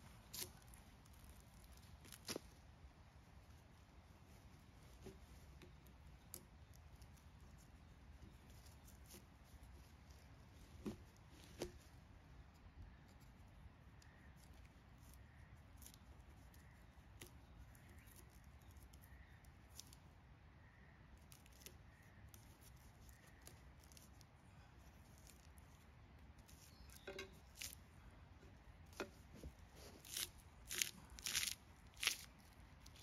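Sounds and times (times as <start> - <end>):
blade stripping bark: 26.4 - 27.8, 29.8 - 33.0
sharp wood cracks: 30.0 - 33.0.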